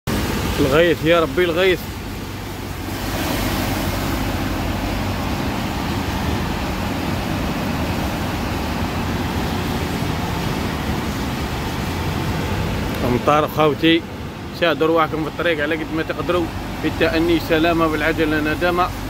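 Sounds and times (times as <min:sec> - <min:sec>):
rain on truck cab: 0:00.1 - 0:19.0
truck engine drone: 0:00.1 - 0:19.0
tyres hissing on wet road: 0:00.1 - 0:19.0.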